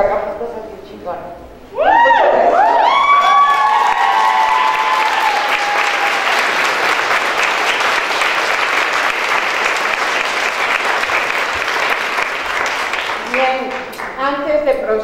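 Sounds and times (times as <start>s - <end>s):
voices cheering: 1.8s - 8.2s
crowd applauding: 2.5s - 14.2s.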